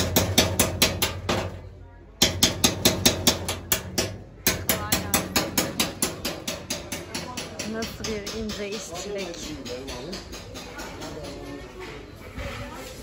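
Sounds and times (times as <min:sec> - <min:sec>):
hammer tapping metal punch: 0:02.2 - 0:11.4.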